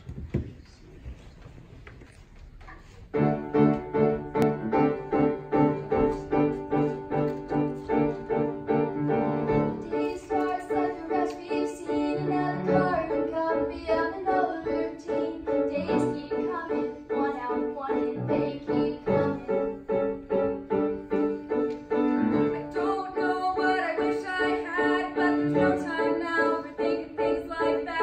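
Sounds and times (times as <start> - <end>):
grand piano chords: 3.1 - 28.0
young choir singing: 9.5 - 19.8, 22.4 - 28.0.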